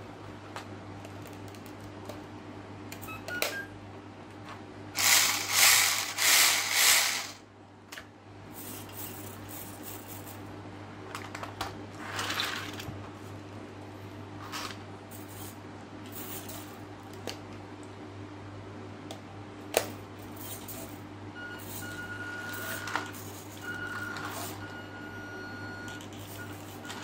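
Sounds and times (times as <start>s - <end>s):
toy car motor whirring: 5.0s - 7.4s.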